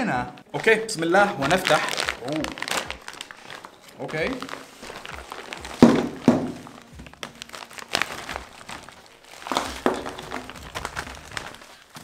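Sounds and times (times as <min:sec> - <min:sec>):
plastic pouch crinkling: 0:00.4 - 0:12.0
tins and packets knocking on table: 0:05.6 - 0:07.4, 0:09.5 - 0:11.1.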